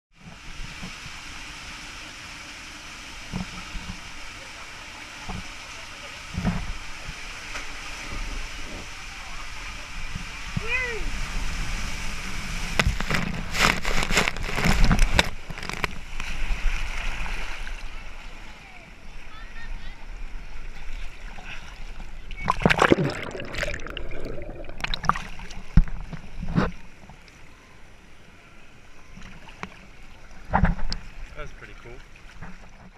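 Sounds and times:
water splashing and churning: 0.1 - 27.3, 29.2 - 32.9
water rushing down a slide tube: 20.6 - 26.7.

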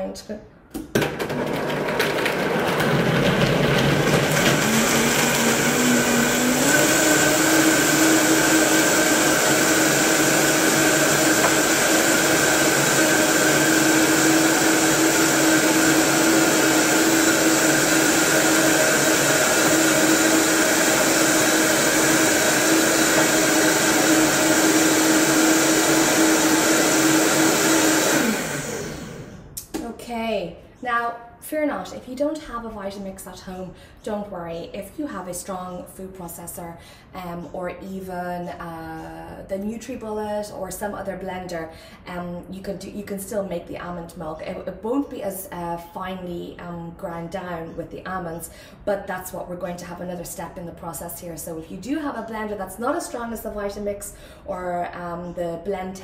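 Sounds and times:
blender motor running: 1.0 - 29.6.

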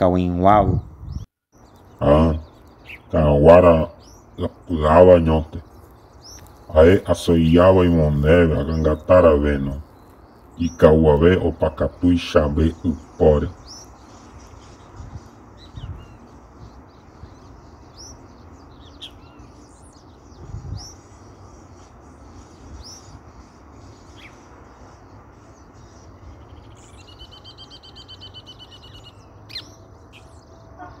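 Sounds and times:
bird trill: 0.0 - 31.0
birds chirping: 0.0 - 31.0
background hiss: 1.6 - 30.4.

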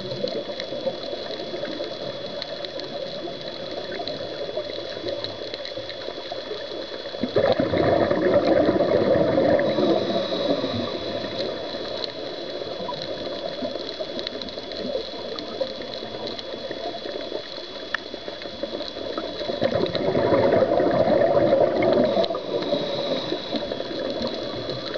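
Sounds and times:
faint high whine: 0.0 - 24.9
quiet bubbling and water movement: 0.0 - 24.9
diver's exhaled bubbles rushing: 7.2 - 11.7, 19.0 - 24.9.

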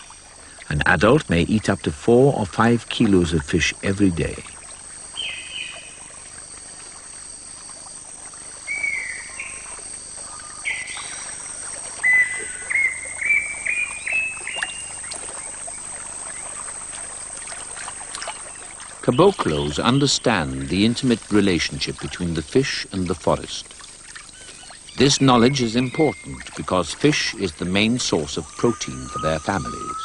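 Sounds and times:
bird whistling notes: 8.6 - 11.4, 12.0 - 15.6, 24.4 - 30.0.

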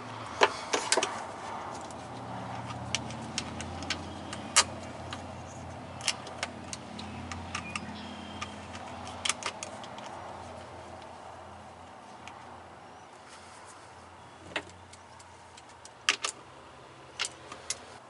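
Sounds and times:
sharp metallic clicks and taps: 2.6 - 5.3, 6.0 - 10.2.

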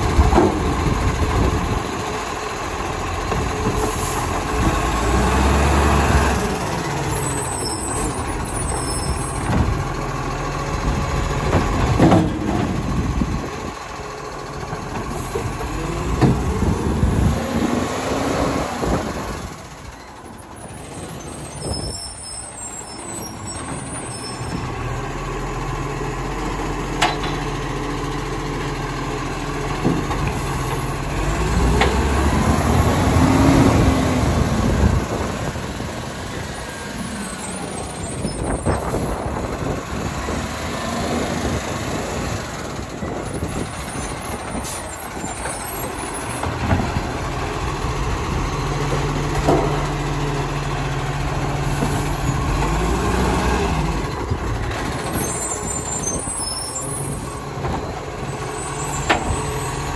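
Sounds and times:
garbage truck diesel engine: 0.0 - 59.9.

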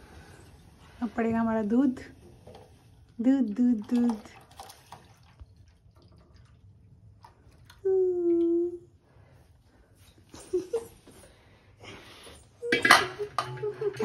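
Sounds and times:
milk pouring into a pan: 3.8 - 7.8
person humming: 7.8 - 8.9.

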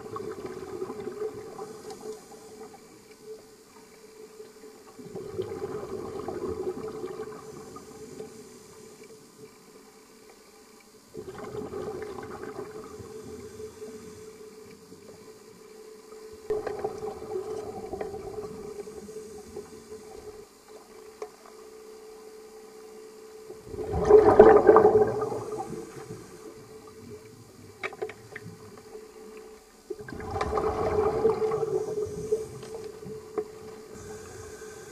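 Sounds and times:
steady hum: 0.0 - 34.9
underwater breath bubbling: 5.0 - 9.0, 23.5 - 27.6, 29.9 - 34.9.

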